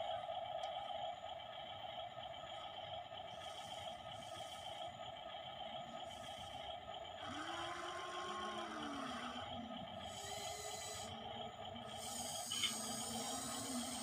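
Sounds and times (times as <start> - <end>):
steady background drone: 0.0 - 14.0
small electric motors whining: 6.0 - 14.0.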